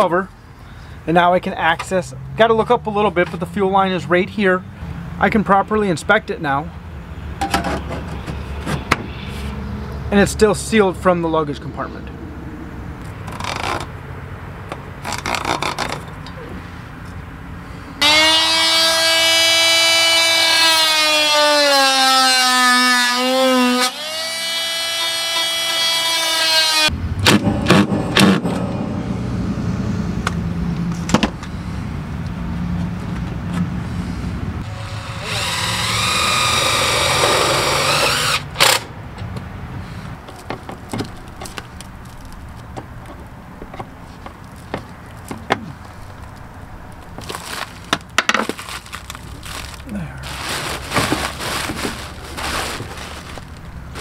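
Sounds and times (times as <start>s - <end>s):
power drill whining: 18.0s - 26.9s, 34.7s - 38.8s
handling knocks and rustling: 40.2s - 54.0s.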